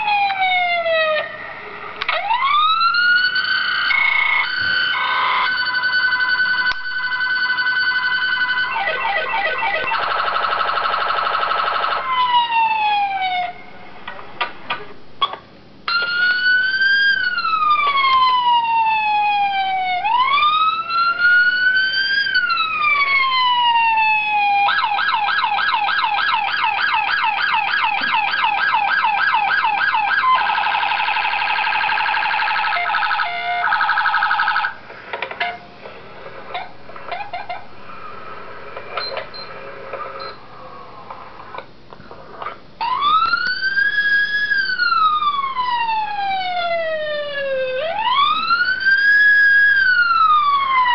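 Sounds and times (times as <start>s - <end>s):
electronic police siren: 0.0s - 1.4s, 2.0s - 13.6s, 15.9s - 34.8s, 42.8s - 50.9s.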